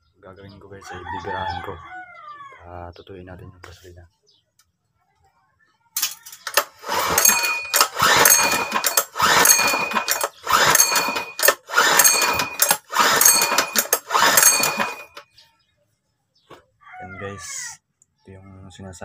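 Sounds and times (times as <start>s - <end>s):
recoil pull-starter whirring rattle: 6.4s - 15.2s.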